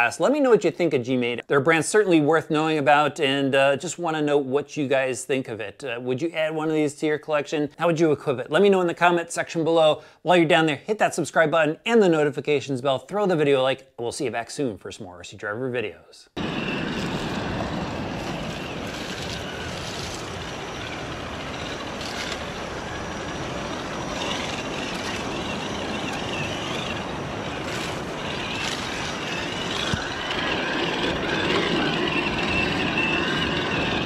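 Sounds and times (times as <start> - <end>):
electric motor whining: 16.4 - 34.0.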